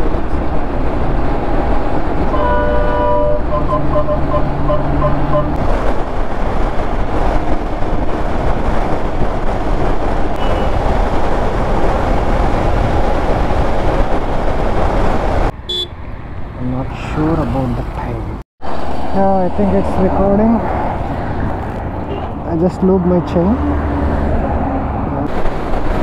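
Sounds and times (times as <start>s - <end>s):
wind and road noise: 0.0s - 26.0s
vehicle horn tooting: 2.3s - 5.6s, 10.4s - 10.8s, 15.7s - 16.0s.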